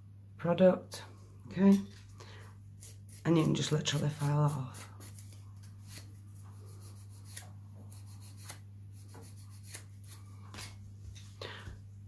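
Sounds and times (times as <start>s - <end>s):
low steady hum: 0.0s - 12.0s
nail file scraping: 2.8s - 10.2s.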